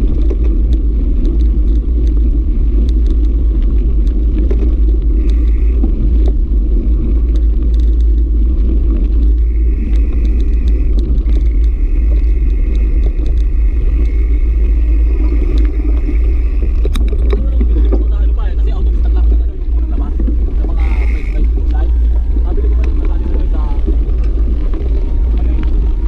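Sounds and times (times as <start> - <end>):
bike tyres crunching on gravel: 0.0 - 26.0
wind buffeting microphone: 0.0 - 26.0
thin high buzz: 9.3 - 17.0, 20.6 - 21.5.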